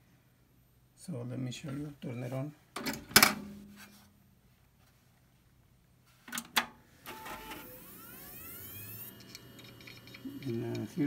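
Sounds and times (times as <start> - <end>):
fans and hard drive whine: 7.0 - 11.0
computer running noise: 7.1 - 11.0.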